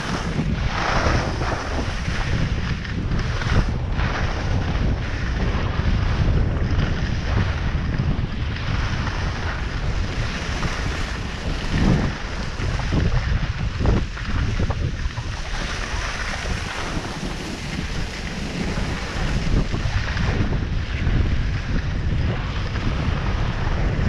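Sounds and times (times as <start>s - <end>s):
skis sliding on snow: 0.0s - 24.0s
wind on microphone: 0.0s - 24.0s.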